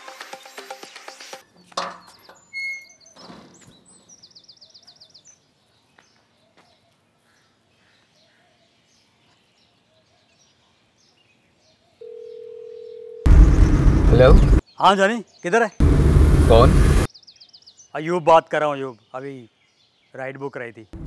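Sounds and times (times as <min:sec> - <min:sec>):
birds chirping: 0:00.4 - 0:21.0
phone ringback tone: 0:12.0 - 0:13.3.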